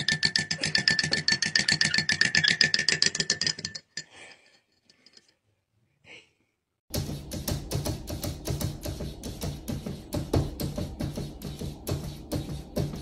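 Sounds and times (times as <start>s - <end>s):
fast ticking beat music: 6.9s - 13.0s.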